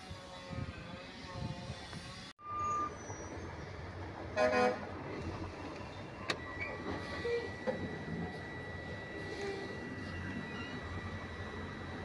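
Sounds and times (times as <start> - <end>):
high electronic tone: 6.4 - 12.0.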